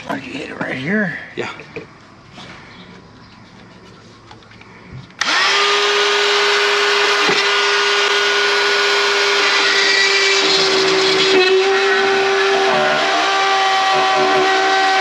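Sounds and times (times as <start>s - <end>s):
rotary cut-out tool whining: 5.2s - 15.0s.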